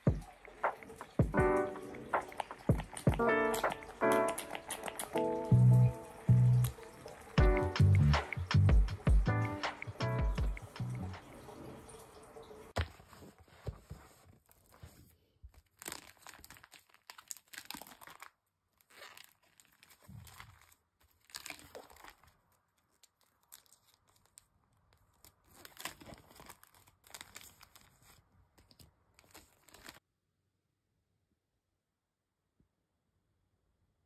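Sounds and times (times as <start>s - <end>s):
plastic sleeves crinkling: 0.0s - 7.4s, 12.7s - 30.0s.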